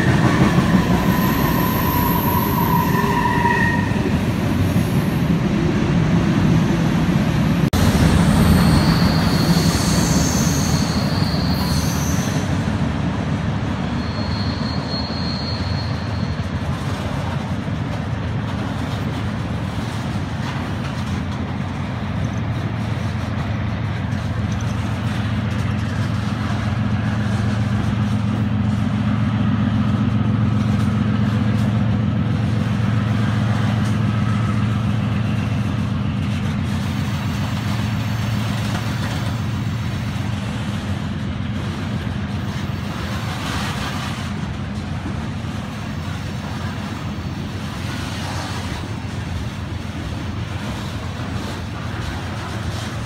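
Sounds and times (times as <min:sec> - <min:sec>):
high wheel squeals: 0:00.0 - 0:05.2, 0:08.1 - 0:12.6, 0:13.8 - 0:16.6
steel wheels rumbling on rail: 0:00.0 - 0:53.0.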